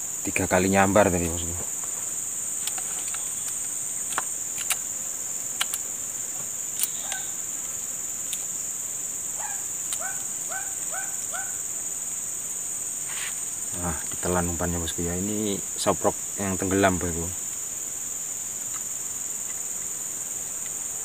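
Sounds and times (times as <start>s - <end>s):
insects droning: 0.0s - 21.0s
sharp clicks: 2.6s - 4.9s, 5.5s - 5.8s, 6.7s - 7.3s.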